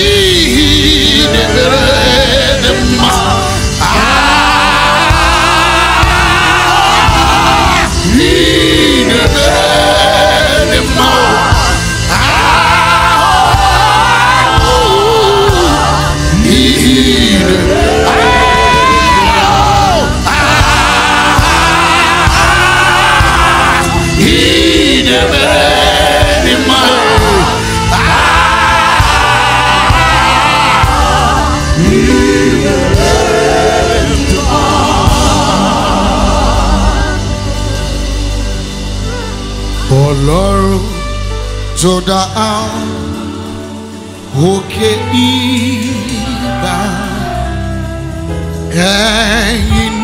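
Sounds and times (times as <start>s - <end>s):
man singing gospel lead: 0.0s - 39.2s, 39.8s - 50.0s
backing singers: 0.0s - 41.1s, 42.5s - 50.0s
band playing: 0.0s - 50.0s.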